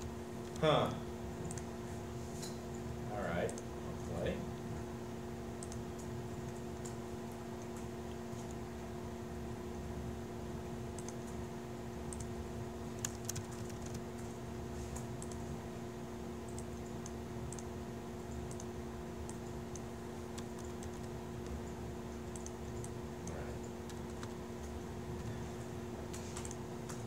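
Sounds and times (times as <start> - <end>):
steady hum: 0.0 - 27.0
laptop keyboard typing: 5.5 - 8.7, 10.9 - 11.4, 12.0 - 15.5, 16.5 - 25.7.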